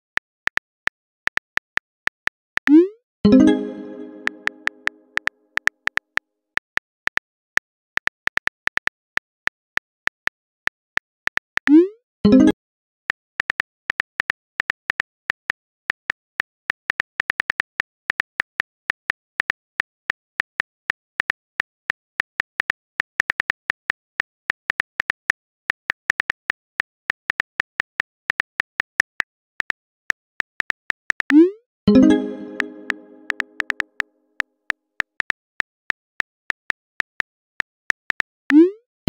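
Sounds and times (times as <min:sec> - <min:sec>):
phone keyboard typing clicks: 0:31.9 - 0:33.8.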